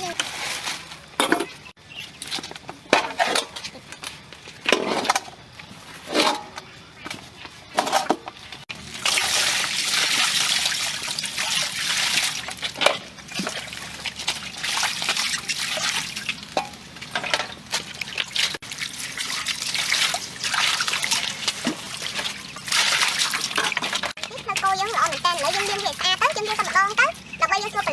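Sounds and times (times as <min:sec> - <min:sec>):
water pouring and splashing: 0:07.8 - 0:27.9.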